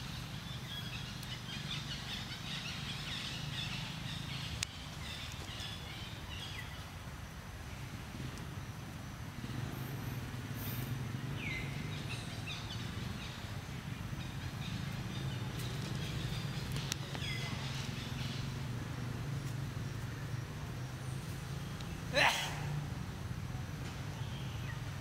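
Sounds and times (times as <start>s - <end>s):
falling bird calls: 10.9s - 18.8s, 21.0s - 22.8s.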